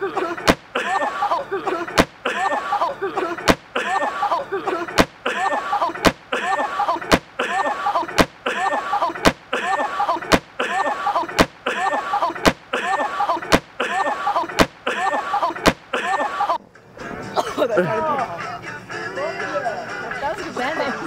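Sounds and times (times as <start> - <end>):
person crying out: 0.0 - 16.6.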